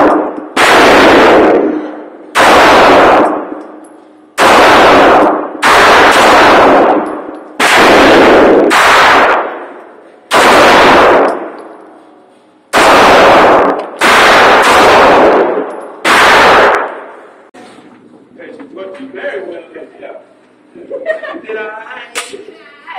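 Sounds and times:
pistol shots echoing: 0:00.0 - 0:03.8, 0:04.4 - 0:11.7, 0:12.7 - 0:17.2.

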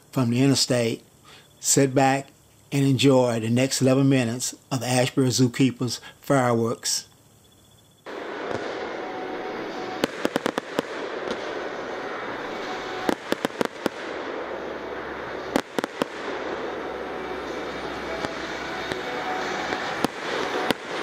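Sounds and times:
steady background noise: 0:00.0 - 0:21.0
fireworks bangs: 0:08.0 - 0:21.0.

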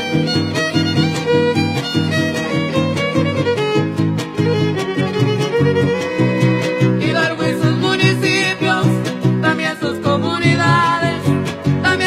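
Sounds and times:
violin melody: 0:00.0 - 0:09.8
strummed guitar chords: 0:00.0 - 0:12.0.

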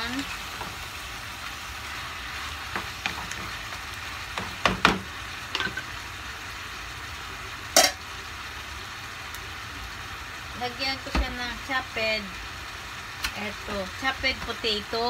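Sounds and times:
food sizzling in frying pan: 0:00.0 - 0:15.0
wooden spatula knocking pan: 0:04.3 - 0:05.8.

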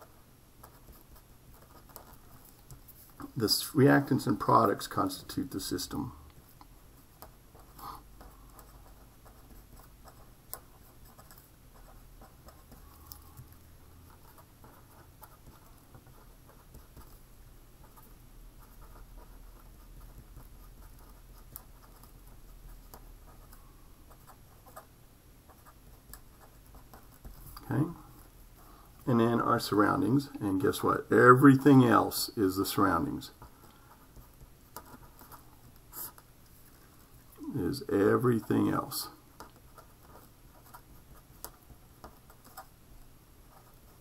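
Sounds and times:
felt-tip pen scratching on paper: 0:00.0 - 0:03.2, 0:07.2 - 0:17.2, 0:17.8 - 0:24.9, 0:32.7 - 0:37.0.

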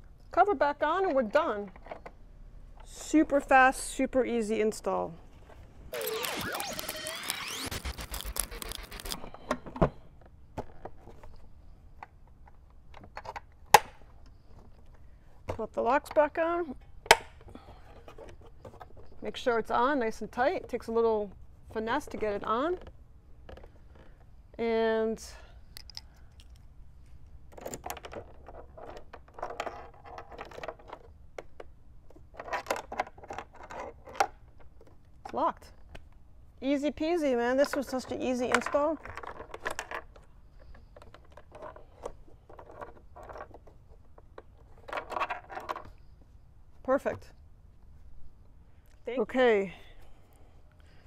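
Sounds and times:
metal and plastic clicks and scrapes: 0:05.9 - 0:15.0, 0:27.5 - 0:36.0, 0:37.6 - 0:46.0.

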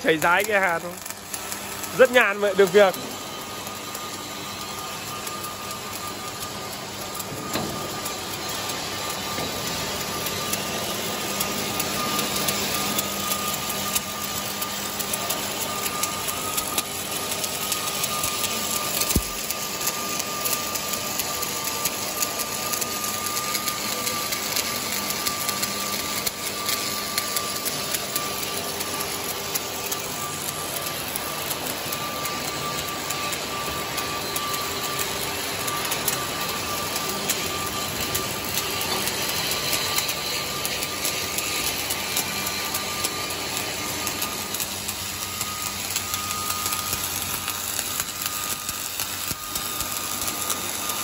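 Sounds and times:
welding arc crackling: 0:00.0 - 0:51.0.

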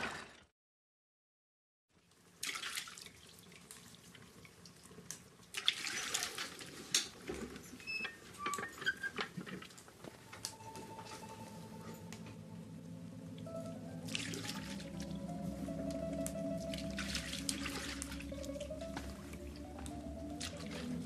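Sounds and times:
water splashing in a tub: 0:02.3 - 0:07.2, 0:14.0 - 0:15.3, 0:16.5 - 0:19.2, 0:20.2 - 0:21.0
water dripping: 0:10.4 - 0:21.0.

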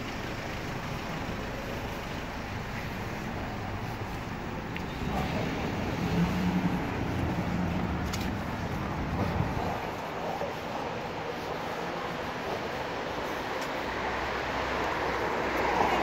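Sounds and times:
road traffic noise: 0:00.0 - 0:16.0
vehicle engine humming: 0:00.0 - 0:16.0.

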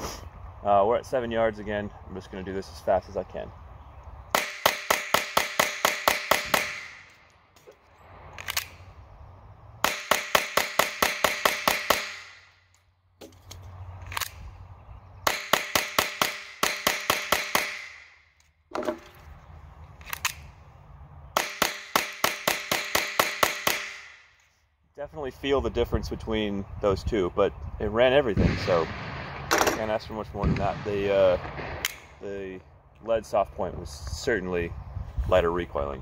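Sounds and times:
rapid pistol shots: 0:04.3 - 0:07.1, 0:09.8 - 0:12.4, 0:15.2 - 0:18.2, 0:21.4 - 0:24.2, 0:30.4 - 0:32.1
metallic magazine clicks: 0:08.4 - 0:08.8, 0:20.0 - 0:20.5.

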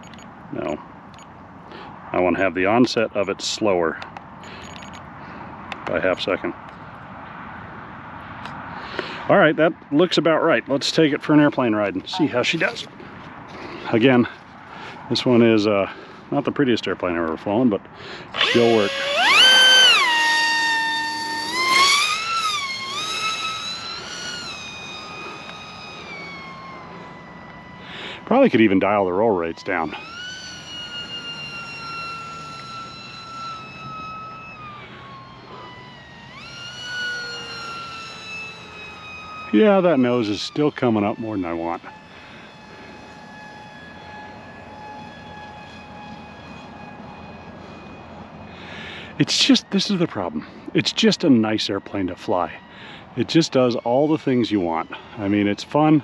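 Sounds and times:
model plane motor whining: 0:10.4 - 0:16.3, 0:18.0 - 0:56.0.

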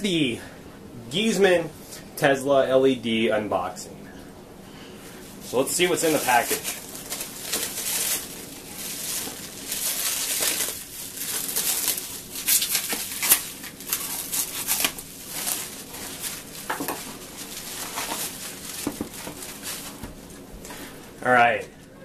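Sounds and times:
plastic wrap crinkling and tearing: 0:05.5 - 0:20.4
knife slitting plastic wrap: 0:05.9 - 0:20.0.

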